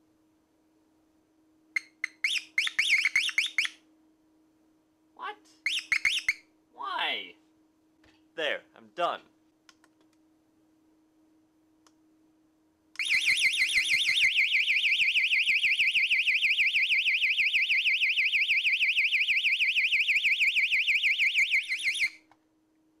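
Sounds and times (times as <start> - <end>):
piezo siren shrieking warble: 2.0 - 3.8, 5.6 - 6.4, 13.0 - 22.2.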